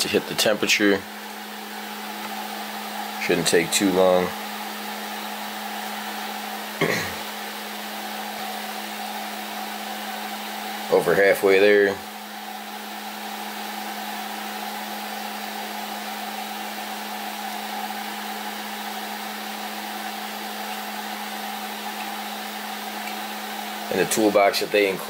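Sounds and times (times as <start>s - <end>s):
cooling fans whirring: 0.0s - 25.0s.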